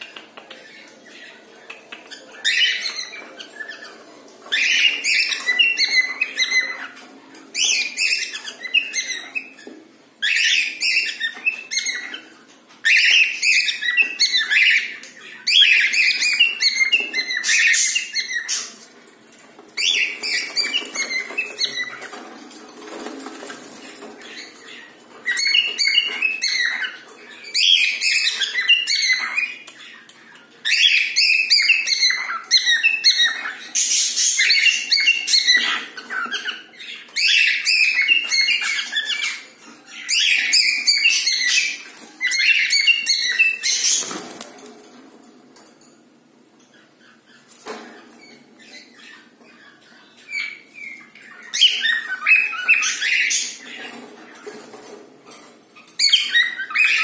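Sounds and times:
cockatiels chirping: 0.0 - 44.8, 46.6 - 57.0.

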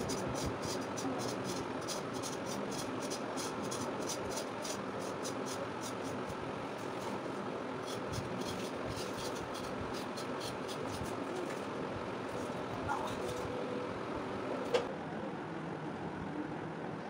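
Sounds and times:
knife scraping gourd skin: 0.0 - 7.2, 7.8 - 11.7.

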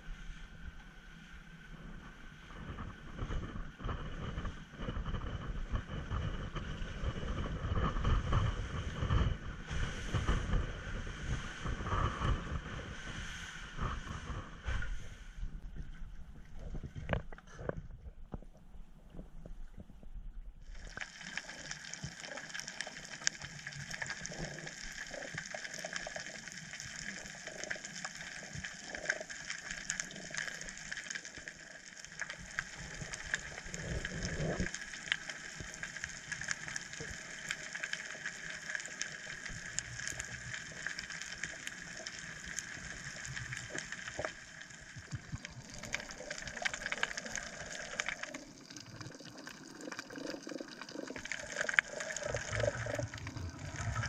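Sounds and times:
water swishing: 0.0 - 54.0
crackle of tiny clicks: 20.7 - 54.0.

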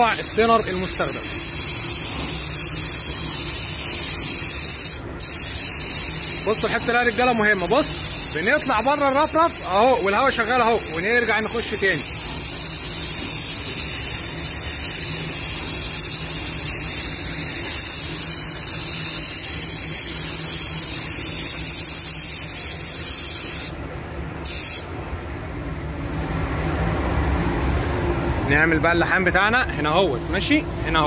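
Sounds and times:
spray gun hissing: 0.0 - 23.8, 24.4 - 24.9.

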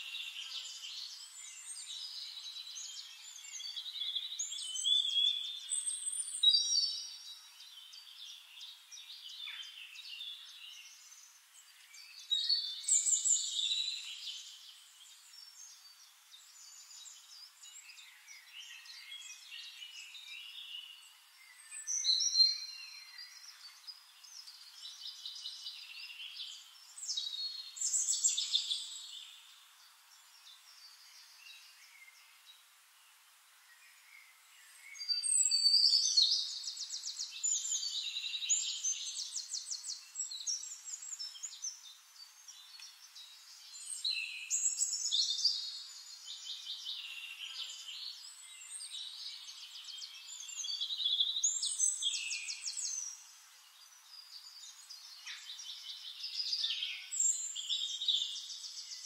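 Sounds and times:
birds singing and chirping: 0.0 - 59.0.

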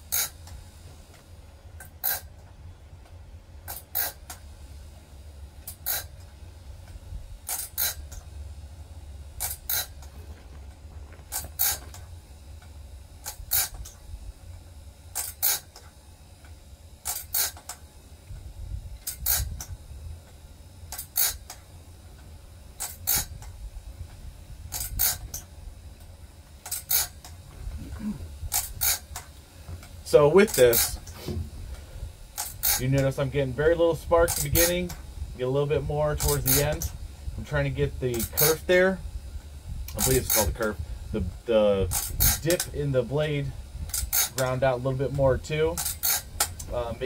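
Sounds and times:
blade tooth grinding: 0.0 - 0.5, 1.8 - 2.3, 3.7 - 4.4, 5.6 - 6.2, 7.4 - 8.3, 9.4 - 10.1, 11.2 - 12.0, 13.2 - 14.0, 15.1 - 15.9, 17.0 - 17.8, 19.0 - 19.7, 20.9 - 21.6, 22.8 - 23.5, 24.7 - 25.5, 26.6 - 35.1, 35.7 - 38.8, 39.9 - 47.0
motor hum: 0.0 - 47.0.

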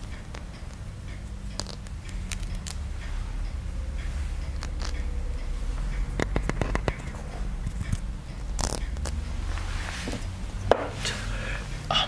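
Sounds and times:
steady low hum: 0.0 - 12.0
scratchy rustles: 8.6 - 11.3.

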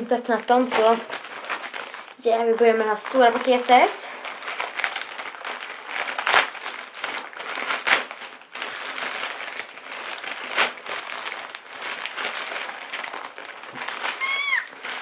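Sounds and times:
plastic packaging crinkling: 0.0 - 15.0
sharp plastic crackles: 0.0 - 15.0.

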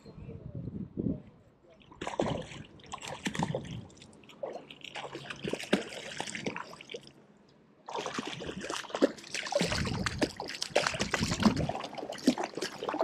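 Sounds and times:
water splashing at shoreline: 1.8 - 7.2, 7.9 - 13.0.

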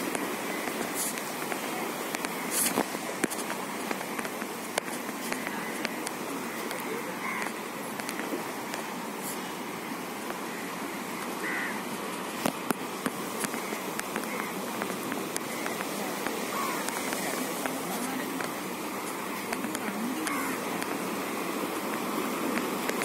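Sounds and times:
sea and wind hiss: 0.0 - 23.0.

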